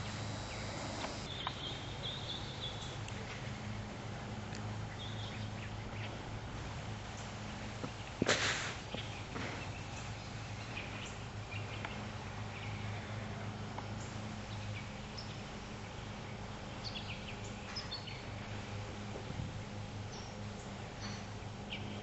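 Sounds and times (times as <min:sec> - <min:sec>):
bird chirps: 0:00.0 - 0:02.8
steady low hum: 0:00.0 - 0:08.2.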